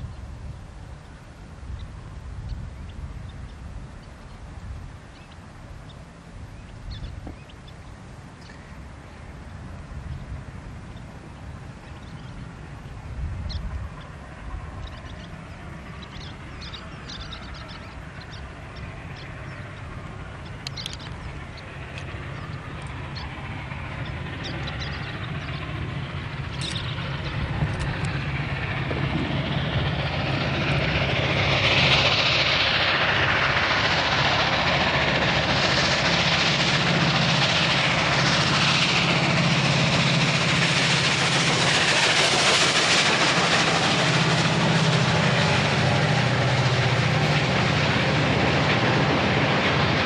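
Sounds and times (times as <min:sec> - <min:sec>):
distant train rumble: 0:00.0 - 0:50.0
small birds chirping: 0:05.1 - 0:25.9, 0:26.5 - 0:28.1.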